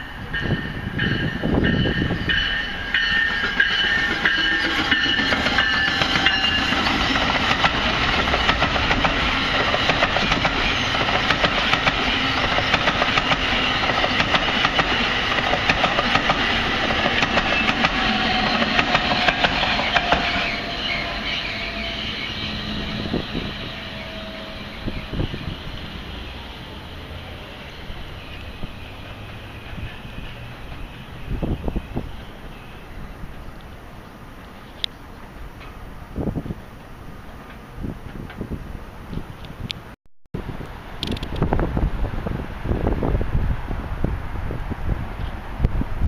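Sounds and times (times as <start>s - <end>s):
steady high whine: 0.0s - 32.5s
train wheels clicking over rail joints: 0.3s - 21.9s, 28.0s - 33.7s, 41.0s - 41.6s.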